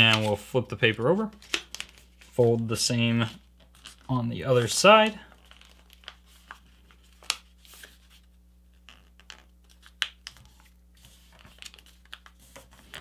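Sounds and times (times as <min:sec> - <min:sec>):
paper crackle: 0:01.2 - 0:02.4, 0:03.6 - 0:08.3, 0:08.9 - 0:13.0
paper rustling while folded: 0:03.2 - 0:08.3, 0:09.7 - 0:13.0.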